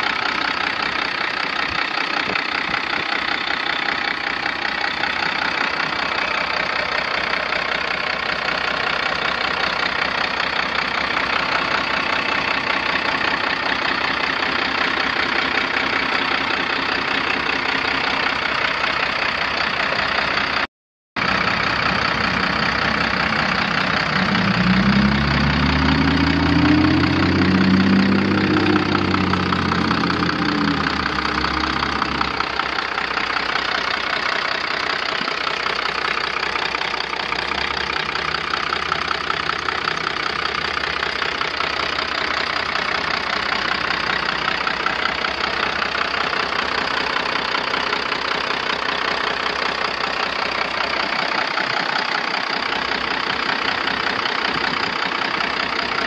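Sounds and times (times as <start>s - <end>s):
diesel truck engine revving and idling: 0.0s - 56.0s.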